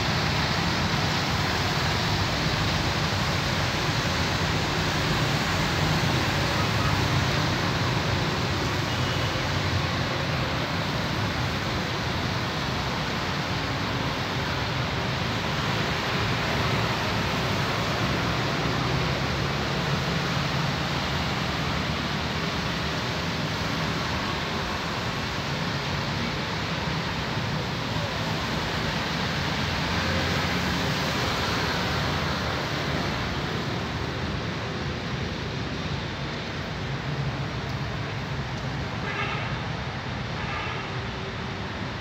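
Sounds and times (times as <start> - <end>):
road traffic roar: 0.0 - 42.0.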